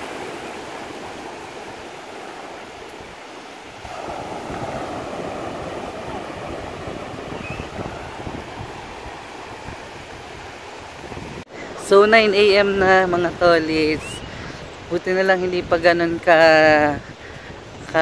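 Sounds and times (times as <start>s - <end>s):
foam washing up sand: 0.0s - 11.3s
ocean surf breaking: 0.0s - 18.0s.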